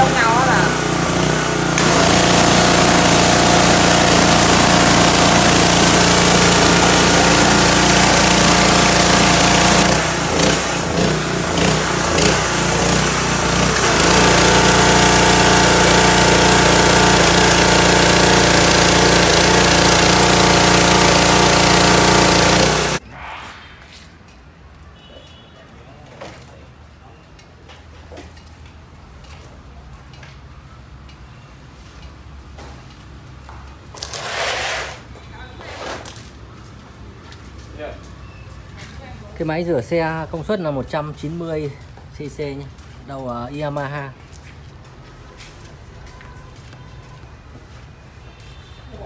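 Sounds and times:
small engine drone: 0:00.0 - 0:23.0
pressure washer spray hiss: 0:01.6 - 0:10.8, 0:11.6 - 0:23.0.

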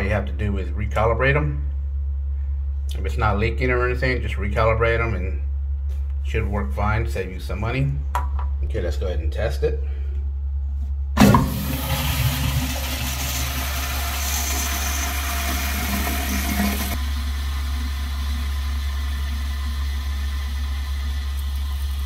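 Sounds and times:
toilet flushing whoosh: 0:11.2 - 0:22.0
water hissing while refilling: 0:11.2 - 0:22.0.

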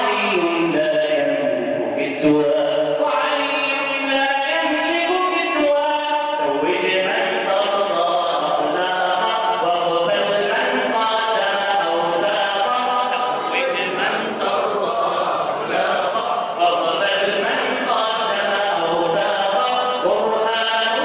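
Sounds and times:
man singing into a microphone: 0:00.0 - 0:21.0.

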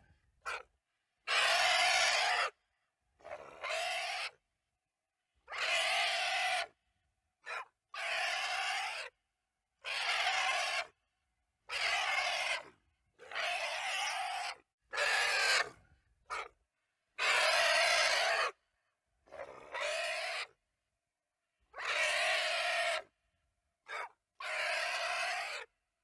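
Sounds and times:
short animal calls: 0:11.7 - 0:16.6.

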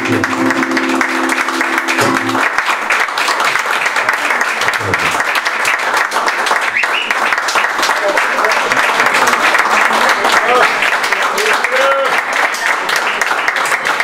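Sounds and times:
acoustic guitar chord: 0:00.0 - 0:02.6
audience applauding: 0:00.0 - 0:14.0.

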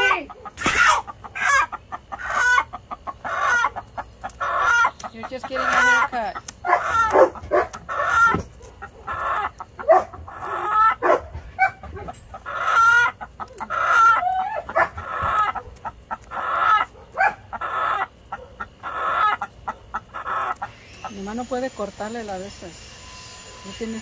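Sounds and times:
chicken clucking and squawking: 0:00.0 - 0:23.8.

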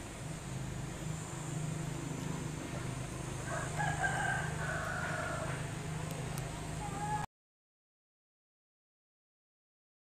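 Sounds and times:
low hum: 0:00.0 - 0:07.3
rooster crowing: 0:03.4 - 0:05.8.

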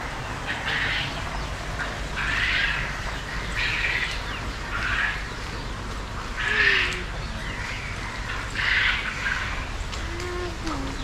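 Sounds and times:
poultry squawking: 0:01.8 - 0:05.3.

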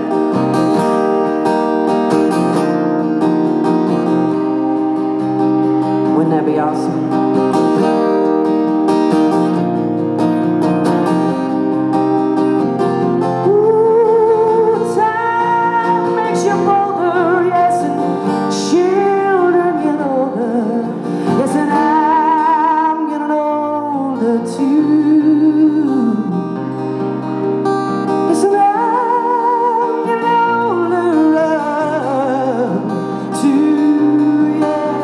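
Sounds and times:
strummed acoustic guitar: 0:00.0 - 0:35.0
woman singing with vibrato: 0:13.4 - 0:26.4, 0:28.3 - 0:35.0.

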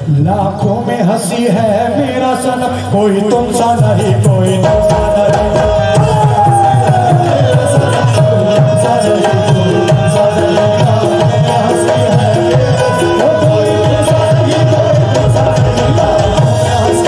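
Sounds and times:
fast tabla rhythm: 0:00.0 - 0:17.0.

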